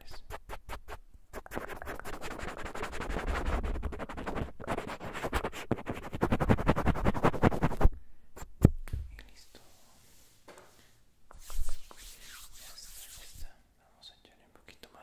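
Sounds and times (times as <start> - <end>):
tool scratching a microphone: 0.0 - 7.9.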